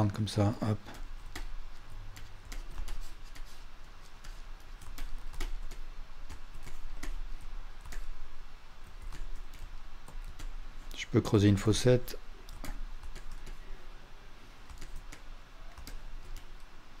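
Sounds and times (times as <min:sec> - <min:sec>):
faint low hum: 0:00.0 - 0:17.0
computer controls clicking: 0:00.9 - 0:03.4, 0:07.8 - 0:08.2, 0:12.4 - 0:13.6, 0:14.6 - 0:16.7.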